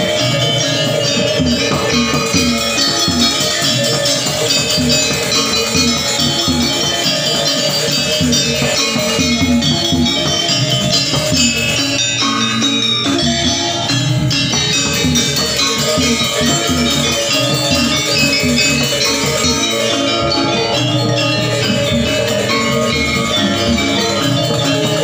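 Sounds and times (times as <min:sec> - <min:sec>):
hand drum: 0:00.0 - 0:25.0
metallophones ringing: 0:00.0 - 0:25.0.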